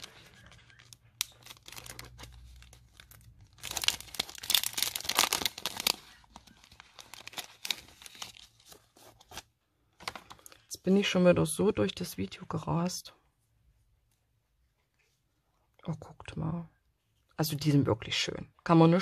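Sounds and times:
plastic bags crinkling: 0:00.0 - 0:09.4.

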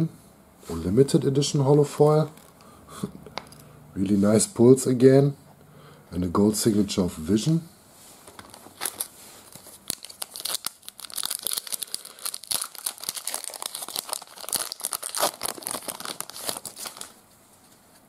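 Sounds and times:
foil wrapper tearing and crinkling: 0:08.5 - 0:17.2.

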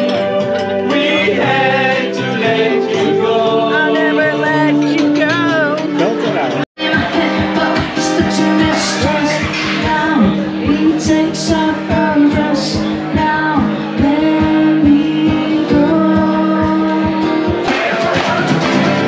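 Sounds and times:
strummed acoustic guitar: 0:00.0 - 0:19.0
woman singing: 0:03.0 - 0:05.9, 0:06.8 - 0:17.7.

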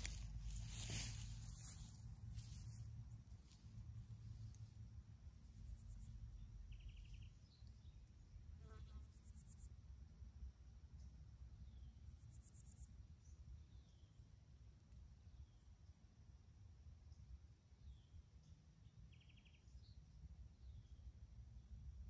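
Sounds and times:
crickets and insects chirping: 0:00.0 - 0:08.4
low steady rumble: 0:00.0 - 0:08.6
faint bird chirps: 0:05.7 - 0:09.7, 0:17.8 - 0:21.1.

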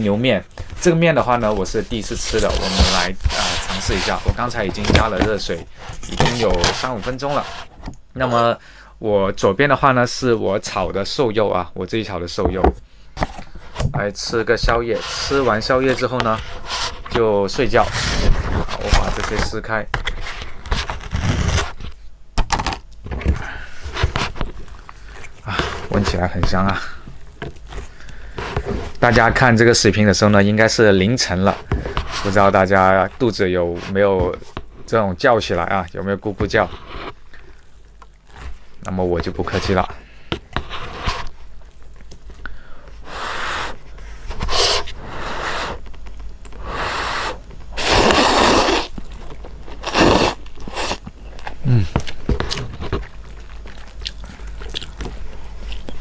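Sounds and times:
noodles being slurped: 0:46.6 - 0:49.0, 0:49.7 - 0:51.0.

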